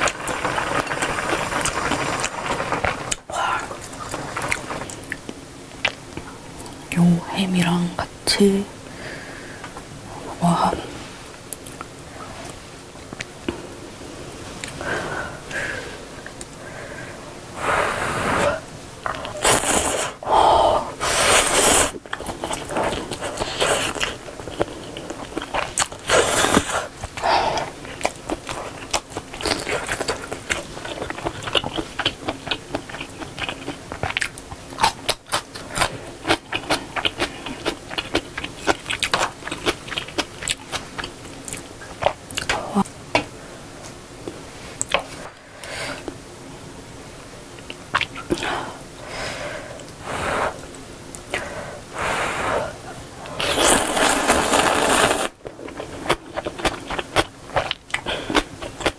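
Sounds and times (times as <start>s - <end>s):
slurping noodles: 0.0s - 5.2s, 17.6s - 20.2s, 21.0s - 32.1s, 51.3s - 55.8s.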